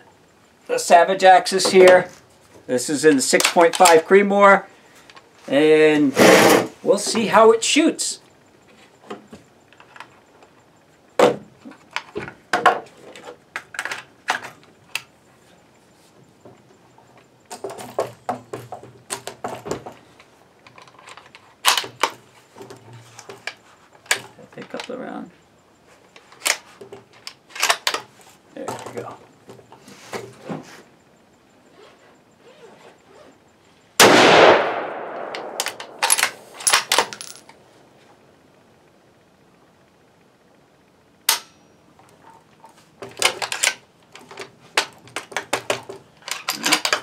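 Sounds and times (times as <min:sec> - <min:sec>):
rifle bolt clicks: 0:34.4 - 0:37.5.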